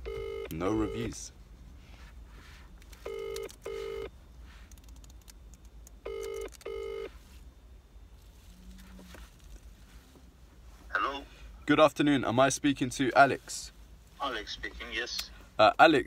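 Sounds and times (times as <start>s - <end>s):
double-ring telephone ringback tone: 0.0s - 1.1s, 3.1s - 4.1s, 6.1s - 7.1s.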